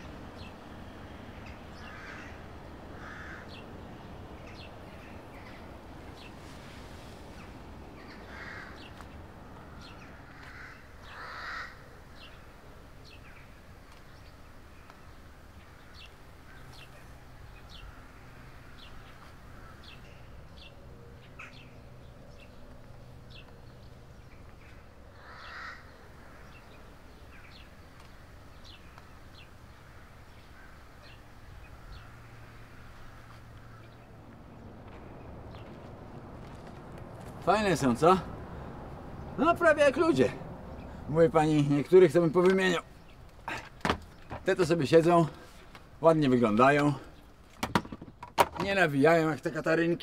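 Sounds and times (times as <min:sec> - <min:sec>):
birds cawing harshly: 0:00.0 - 0:48.1.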